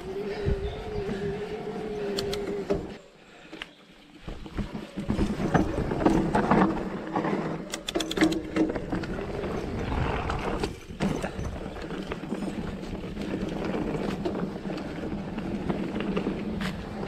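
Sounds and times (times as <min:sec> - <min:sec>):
sharp clicks: 0:02.1 - 0:02.5, 0:07.7 - 0:08.6
bike rattling: 0:04.0 - 0:17.0
bike tyres rumbling on dirt: 0:04.2 - 0:07.7, 0:08.5 - 0:17.0.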